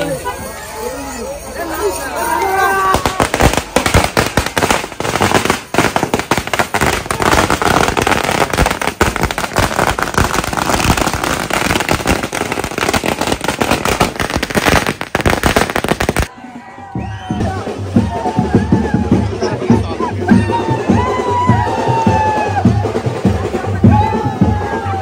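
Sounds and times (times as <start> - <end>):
firecrackers banging: 2.8 - 16.3.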